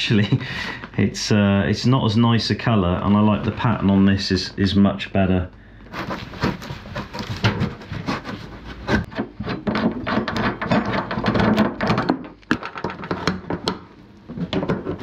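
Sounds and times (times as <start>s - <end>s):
upholstery and foam rustling: 5.9s - 9.1s.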